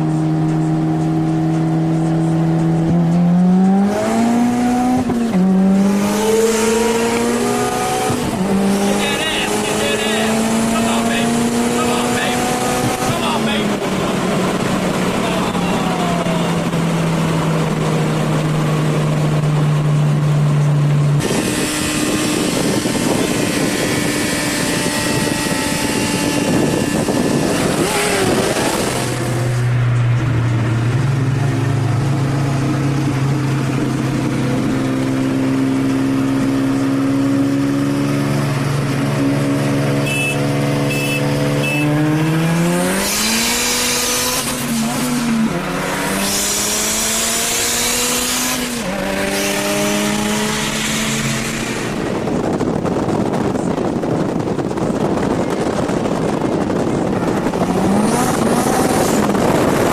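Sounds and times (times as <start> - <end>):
car engine revving: 0.0 - 59.9
wind and road noise: 0.0 - 59.9.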